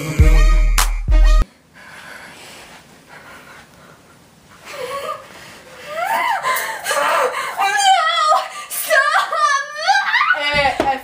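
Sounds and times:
girl making wordless vocal sounds: 7.6s - 10.5s.

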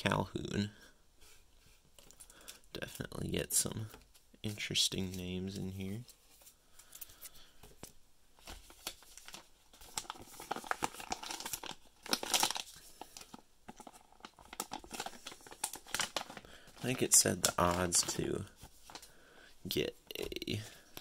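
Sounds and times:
plastic pouch crinkling: 8.4s - 19.1s.

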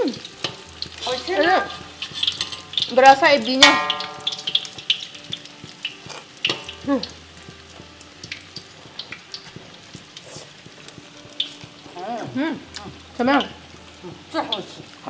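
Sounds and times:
food sizzling in hot oil: 0.0s - 15.0s
stirring clicks and scrapes: 0.4s - 3.0s.

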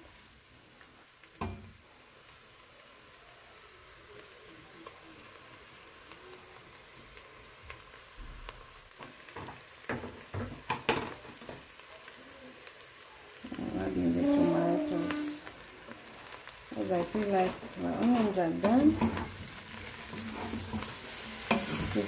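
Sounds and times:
meat and onions sizzling: 0.0s - 22.0s
stirring knocks and scrapes: 17.4s - 22.0s.

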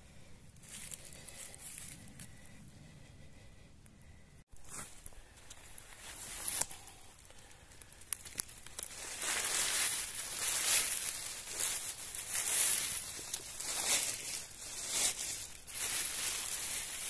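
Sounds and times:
dry leaves and twigs rustling: 0.6s - 2.6s, 4.5s - 17.0s
twigs snapping: 6.4s - 17.0s.

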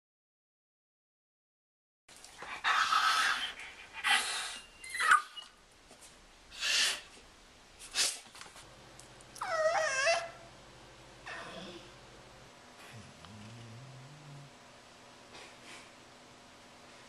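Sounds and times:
dog whining: 2.6s - 5.6s, 9.4s - 10.5s.

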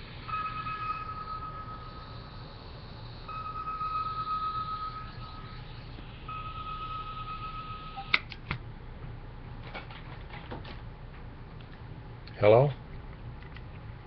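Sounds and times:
steady high tone: 0.0s - 8.2s.

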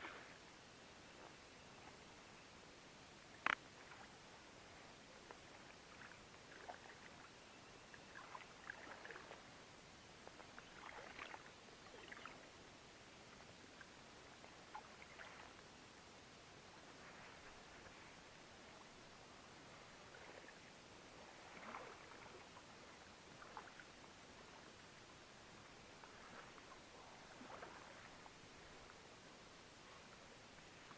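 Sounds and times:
water splashing from oar: 8.1s - 9.4s, 10.2s - 12.4s, 26.0s - 28.3s.

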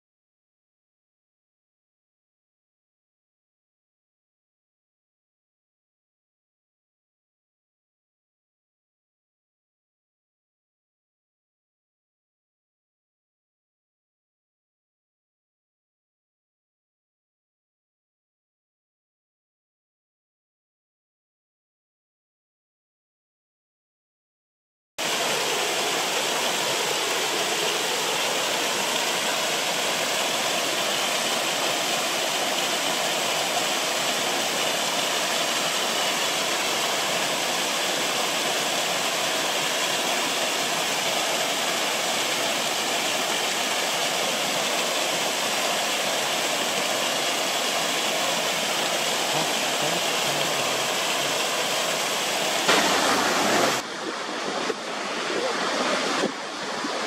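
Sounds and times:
waterfall rushing over rocks: 25.0s - 57.0s.

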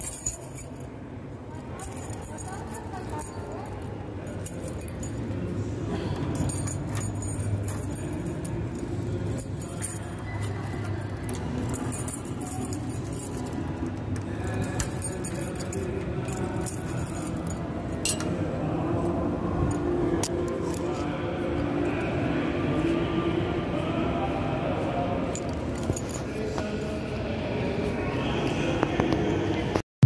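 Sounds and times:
metallic jingling and clinking: 0.0s - 0.9s, 1.6s - 5.4s, 6.3s - 18.2s, 25.3s - 27.9s.

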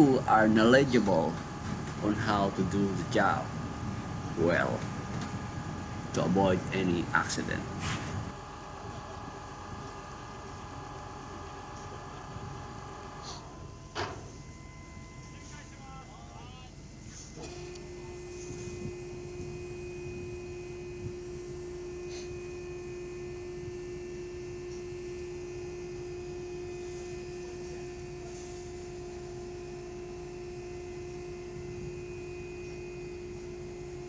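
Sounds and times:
davit motor humming: 0.0s - 34.0s.

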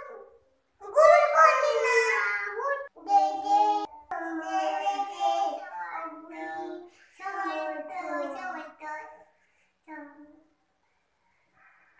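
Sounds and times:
toddler singing: 0.0s - 9.2s.

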